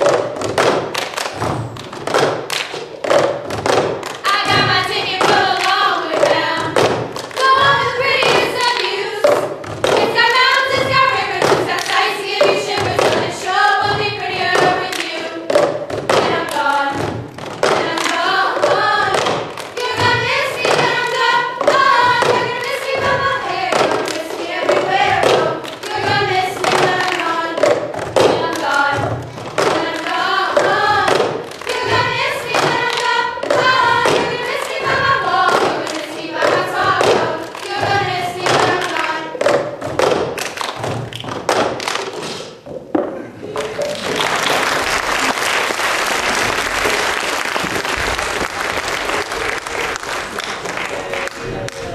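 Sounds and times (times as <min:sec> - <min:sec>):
hand claps: 0:00.0 - 0:42.6, 0:43.5 - 0:51.9
girls singing together: 0:03.2 - 0:41.0.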